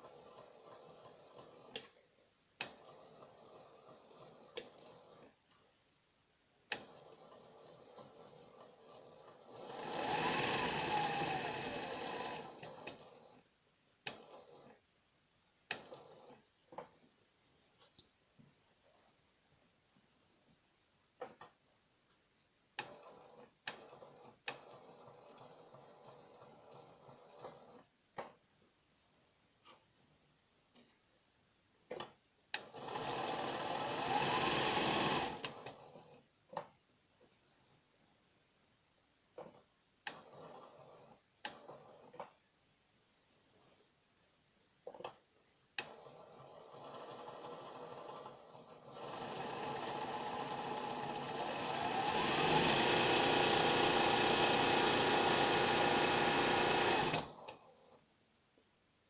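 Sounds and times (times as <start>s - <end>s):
sewing machine stitching: 0.0s - 5.6s, 6.7s - 14.8s, 15.7s - 17.0s, 22.7s - 28.3s, 31.9s - 36.7s, 39.4s - 42.4s, 45.8s - 58.0s.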